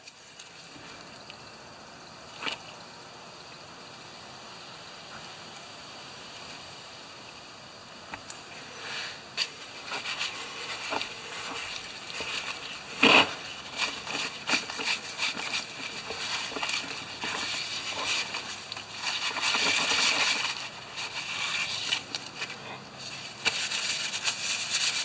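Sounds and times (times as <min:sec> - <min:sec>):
cloth rag rubbing rubber tire: 0:09.4 - 0:25.0.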